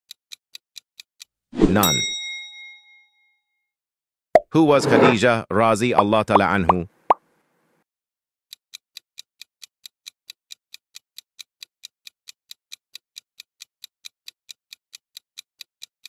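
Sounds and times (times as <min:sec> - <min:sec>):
clock ticking: 0:00.1 - 0:01.3, 0:08.7 - 0:15.9.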